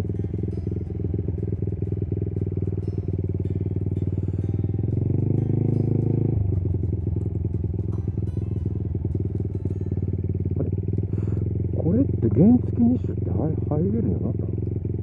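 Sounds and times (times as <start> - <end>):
motorcycle engine at low revs: 0.0 - 15.0.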